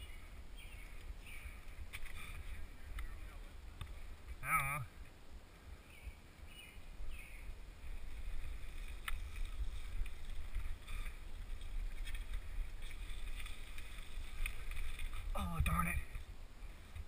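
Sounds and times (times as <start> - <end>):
wind buffeting microphone: 5.7 - 17.0
bike rattling on trail: 6.8 - 17.0.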